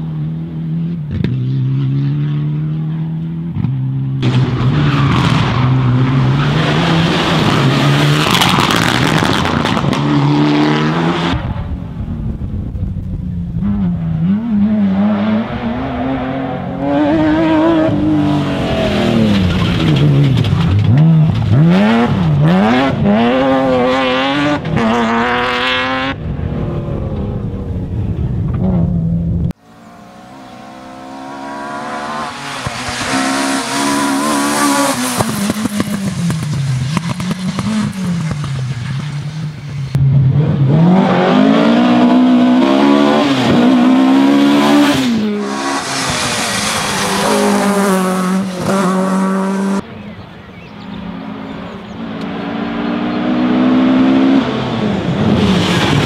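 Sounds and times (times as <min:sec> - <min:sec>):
rally car engine revving: 0:00.0 - 0:56.0
rally car passing: 0:13.4 - 0:56.0.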